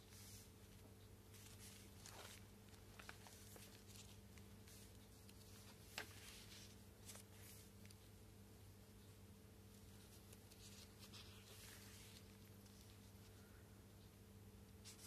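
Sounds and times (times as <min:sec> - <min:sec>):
faint steady hum: 0:00.0 - 0:15.0
stiff pages rustling: 0:00.1 - 0:08.0, 0:09.8 - 0:13.4.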